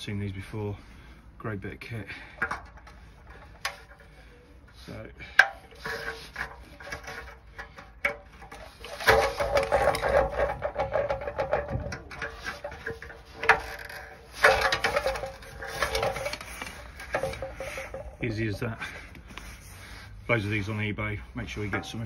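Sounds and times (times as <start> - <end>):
rubber squeaking against metal: 3.0 - 7.6.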